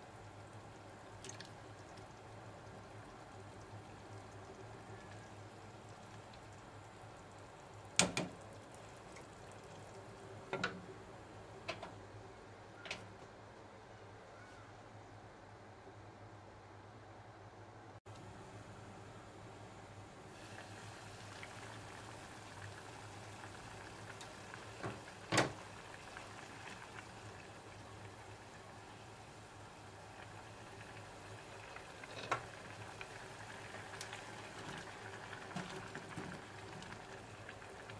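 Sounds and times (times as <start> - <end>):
curry simmering in a pot: 0.0 - 11.6, 20.3 - 37.9.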